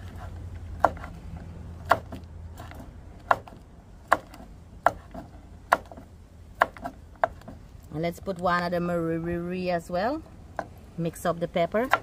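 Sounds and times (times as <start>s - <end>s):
knife chopping on wooden board: 0.0s - 1.2s, 1.8s - 7.6s, 11.8s - 12.0s.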